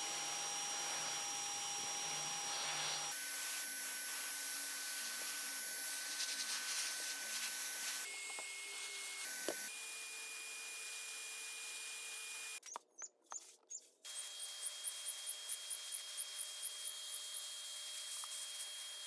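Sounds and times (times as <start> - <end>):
paint spray gun motor hissing: 0.0 - 9.8.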